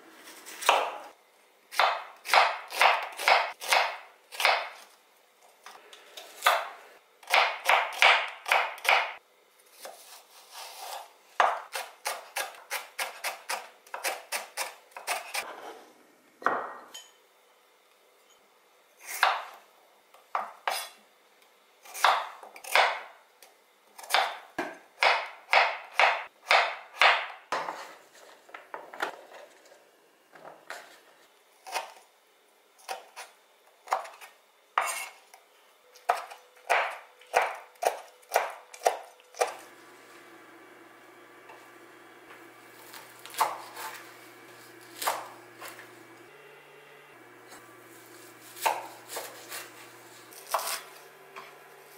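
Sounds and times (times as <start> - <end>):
knife chopping on wooden board: 1.8 - 4.8, 7.3 - 9.2, 11.4 - 15.4, 36.1 - 39.6, 42.8 - 44.1, 44.7 - 45.9, 48.4 - 51.5.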